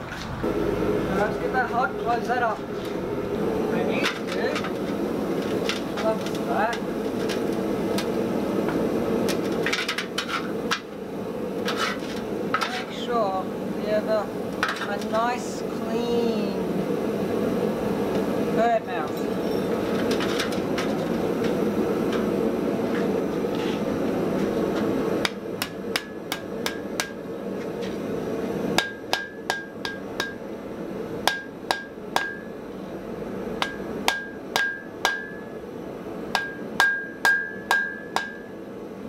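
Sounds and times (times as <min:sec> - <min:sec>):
steady rushing noise: 0:00.0 - 0:08.6
hammer striking steel on anvil: 0:25.2 - 0:27.2, 0:28.8 - 0:30.4, 0:31.2 - 0:32.5, 0:33.6 - 0:35.6, 0:36.3 - 0:38.5.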